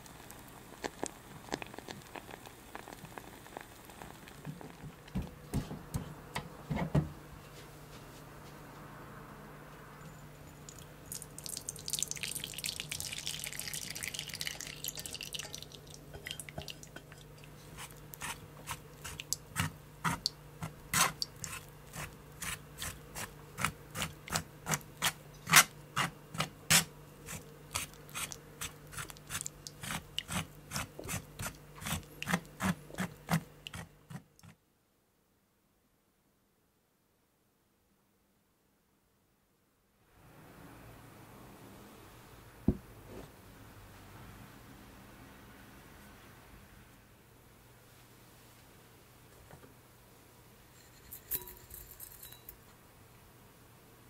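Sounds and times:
pulp poured with wet hiss: 10.7s - 18.4s
spoon scraping wire mesh: 50.7s - 52.6s.

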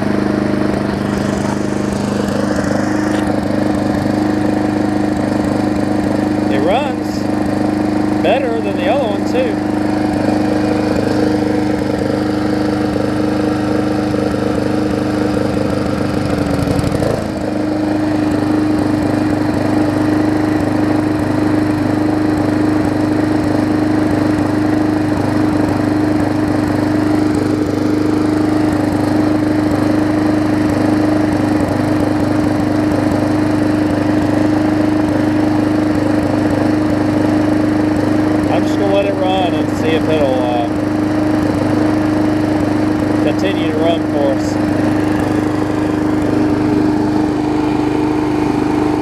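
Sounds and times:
lawn mower engine running: 0.0s - 49.0s.

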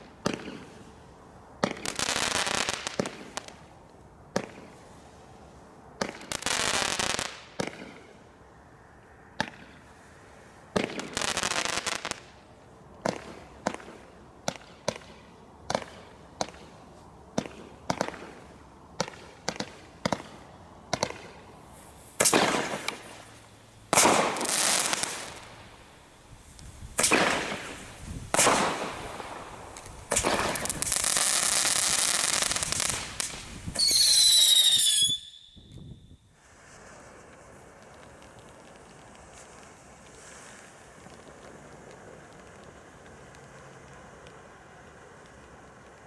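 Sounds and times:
fireworks bursts with crackling: 0.0s - 1.0s, 1.6s - 3.7s, 6.0s - 8.2s, 9.4s - 46.0s
fireworks popping: 13.0s - 25.7s, 26.4s - 46.0s
shrill firework whistle: 33.7s - 36.3s.

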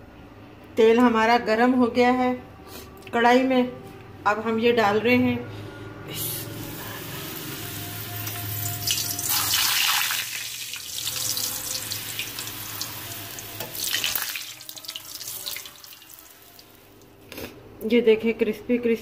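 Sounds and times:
dough sizzling in hot oil: 6.6s - 16.9s.

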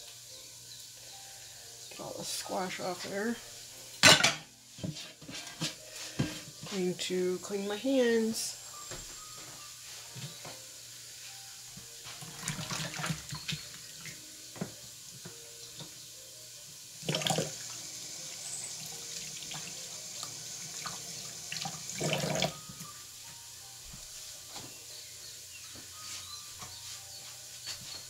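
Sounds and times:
tap water running: 12.0s - 23.4s.

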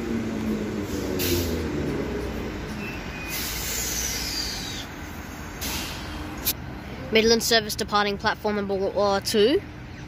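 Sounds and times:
electric train rumble: 0.0s - 6.4s
air hiss: 3.3s - 5.0s.

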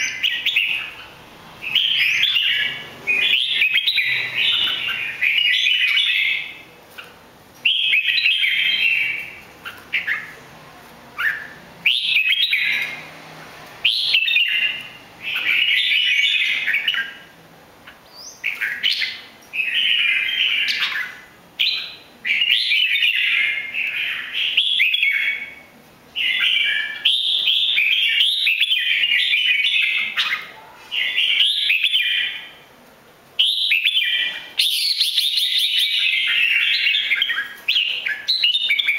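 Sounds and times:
bulbul singing warbled phrases: 0.0s - 6.7s, 7.7s - 10.4s.

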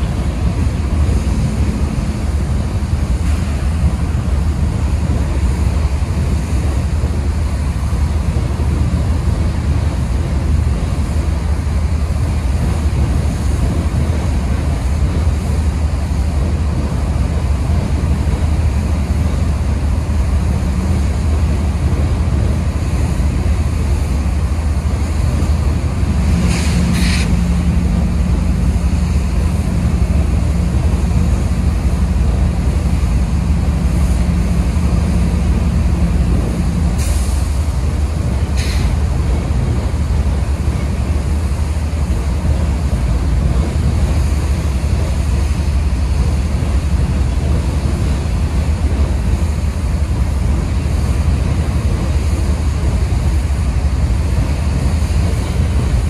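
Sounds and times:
freight train rumbling past: 0.0s - 56.0s
train hum: 0.0s - 56.0s
brief high hisses: 26.5s - 27.4s.

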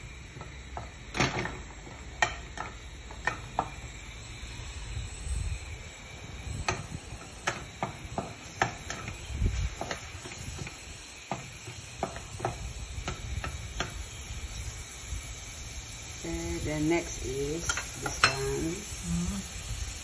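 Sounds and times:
oil sizzling: 0.0s - 20.0s.

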